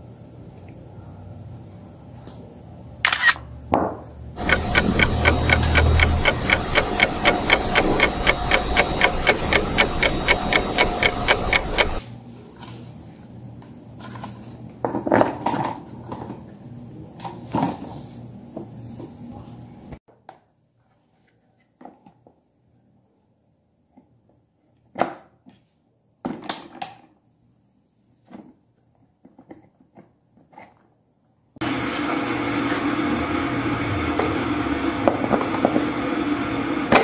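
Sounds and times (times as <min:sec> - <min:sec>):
small electric fan motor ticking: 0:04.4 - 0:12.0.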